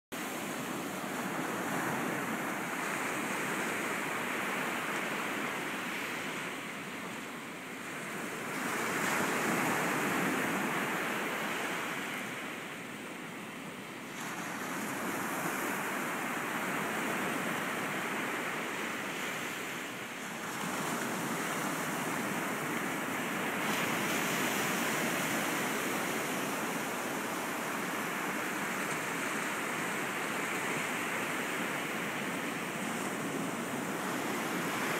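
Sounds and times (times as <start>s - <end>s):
waves breaking on sandy beach: 0.2s - 34.9s.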